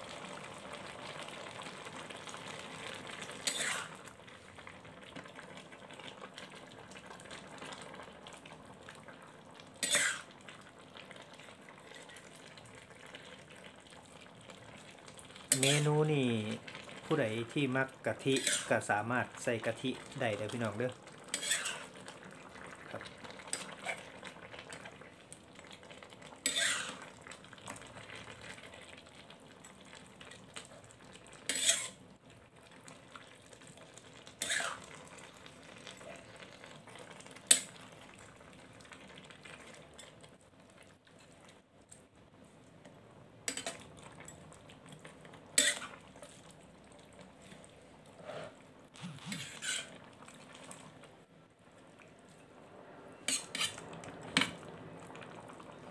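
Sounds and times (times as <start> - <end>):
food sizzling: 0.0 - 55.9
metal spatula scraping wok: 3.4 - 4.0, 9.8 - 10.3, 15.5 - 16.0, 18.3 - 18.8, 21.3 - 21.9, 26.4 - 27.0, 31.5 - 32.0, 34.4 - 34.8, 45.6 - 46.0, 48.2 - 50.0, 53.2 - 54.6.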